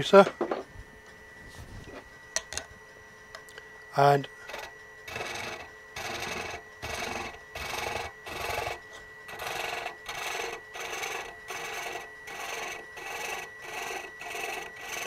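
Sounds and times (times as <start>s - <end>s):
faint high whine: 0.0s - 15.0s
thread chaser scraping wood: 4.2s - 15.0s.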